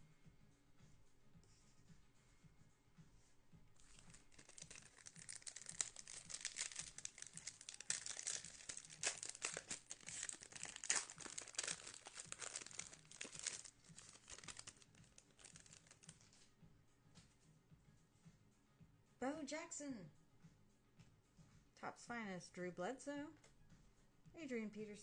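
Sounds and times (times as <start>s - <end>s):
wrappers tearing and crinkling: 3.8s - 16.3s.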